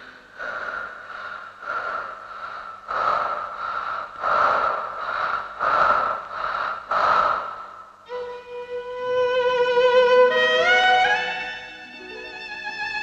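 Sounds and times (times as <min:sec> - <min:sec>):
woman breathing heavily: 0:00.0 - 0:08.3.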